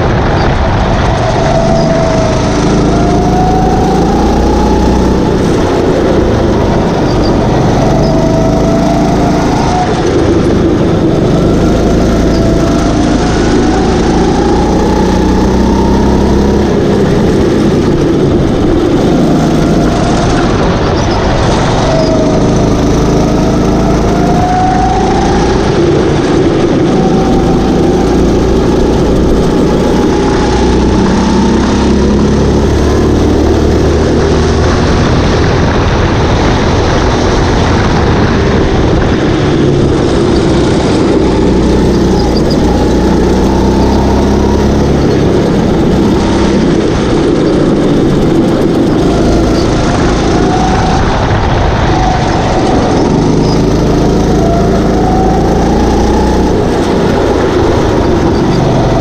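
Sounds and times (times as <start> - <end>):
go-kart engine revving: 0.0 - 59.0.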